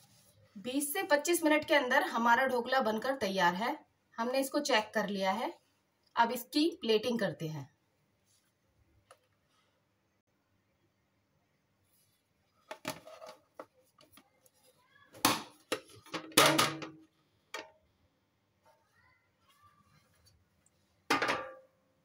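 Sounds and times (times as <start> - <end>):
plate and metal tin clattering: 21.1 - 21.7.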